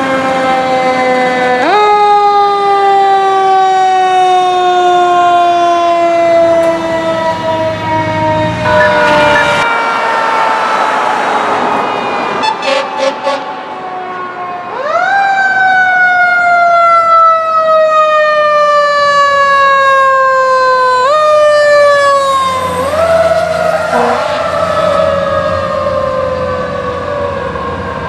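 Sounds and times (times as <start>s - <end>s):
fire engine horn blasts: 0.0s - 10.6s, 12.3s - 14.2s, 22.0s - 25.7s
fire engine siren wailing: 0.0s - 28.0s.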